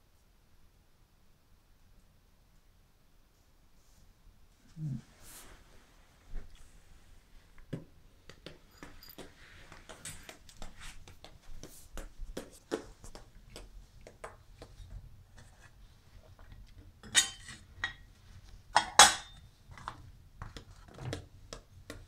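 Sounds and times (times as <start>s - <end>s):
dishes clattering: 17.0s - 18.1s, 18.8s - 19.4s
dishes clinking in metal sink: 17.0s - 18.1s, 18.8s - 19.4s.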